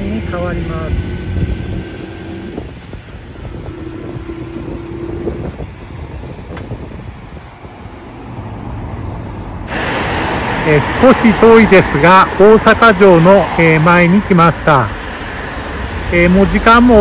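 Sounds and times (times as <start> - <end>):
moped engine running: 0.0 - 7.6
low traffic rumble: 0.0 - 17.0.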